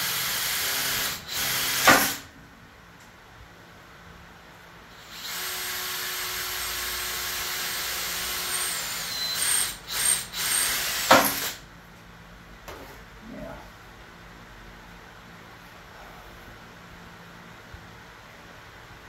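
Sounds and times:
electric drill boring: 0.0s - 2.2s, 4.9s - 11.6s.

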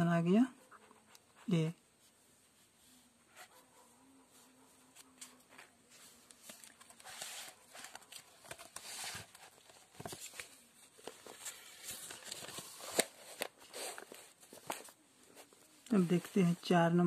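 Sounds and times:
paper pages rustling: 4.9s - 16.7s.

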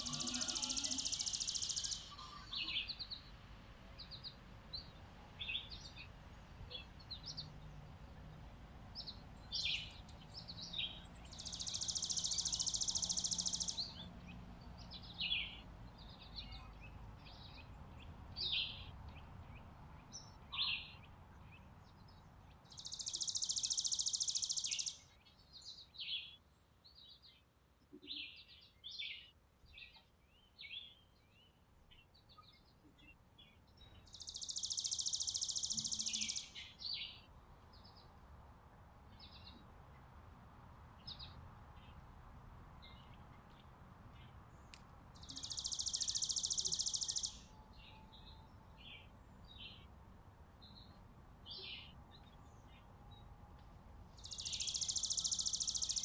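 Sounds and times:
bird trills: 0.0s - 2.8s, 34.4s - 36.7s, 45.2s - 47.4s, 54.2s - 56.0s
songbirds chirping: 0.0s - 56.0s.

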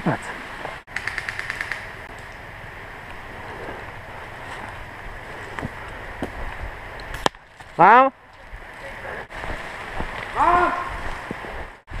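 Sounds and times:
wind noise on microphone: 8.4s - 12.0s.

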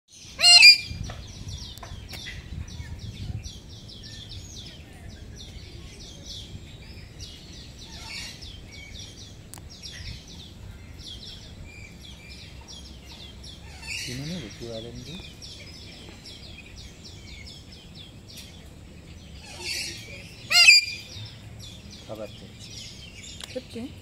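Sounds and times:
birds chirping chatter: 0.1s - 24.0s
loud harsh bird squawk: 0.3s - 1.0s, 19.4s - 21.2s.

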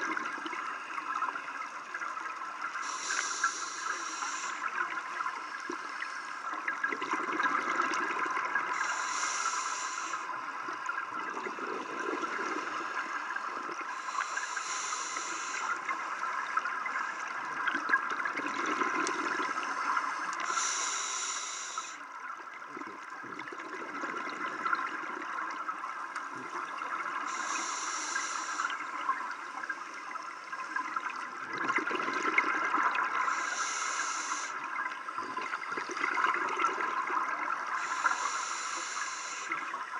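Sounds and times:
steady underwater hiss: 0.0s - 39.9s
regulator hissing inhalation: 2.8s - 4.8s, 8.7s - 10.6s, 13.9s - 16.2s, 19.7s - 22.0s, 27.2s - 28.9s, 33.2s - 34.7s, 37.6s - 39.6s.

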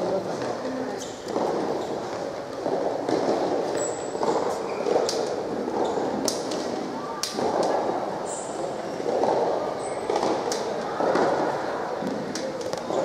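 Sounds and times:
murmur of distant voices: 0.0s - 13.0s
sharp knocks: 9.0s - 13.0s.

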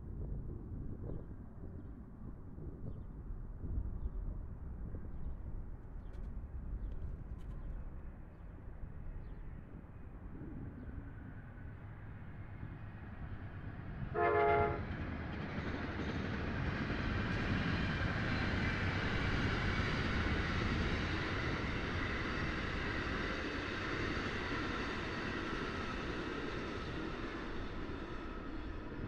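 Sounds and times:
passing train rumble: 3.2s - 29.0s
train horn blast: 14.1s - 14.9s.

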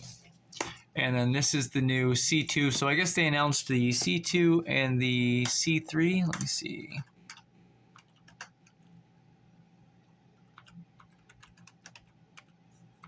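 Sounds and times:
faint steady hum: 0.0s - 13.0s
keyboard typing clicks: 7.3s - 8.9s, 10.5s - 12.6s.

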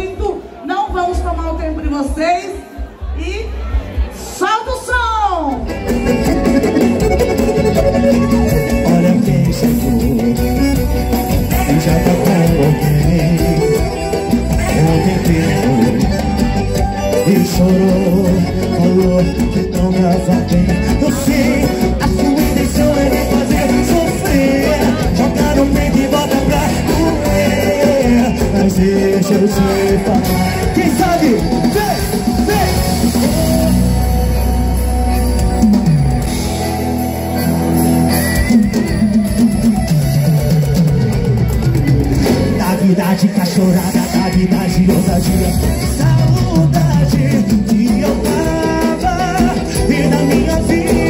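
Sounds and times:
band music with guitar: 0.0s - 51.0s
person singing: 5.7s - 35.8s, 42.1s - 51.0s.

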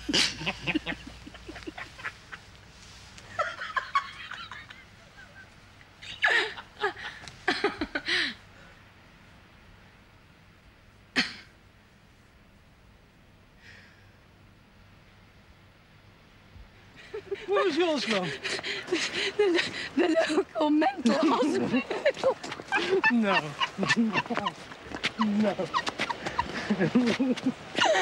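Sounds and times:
people giggling and shrieking: 21.3s - 28.0s.

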